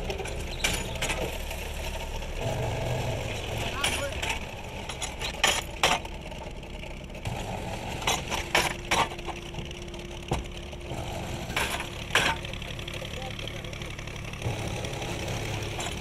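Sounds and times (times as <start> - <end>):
machine motor hum: 0.0 - 16.0
sharp metal clanks: 3.6 - 6.1, 11.5 - 12.6.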